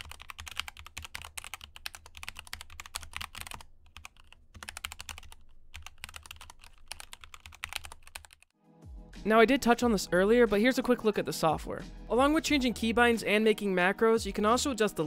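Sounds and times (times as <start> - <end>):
fast typing on mechanical keyboard: 0.0 - 8.5.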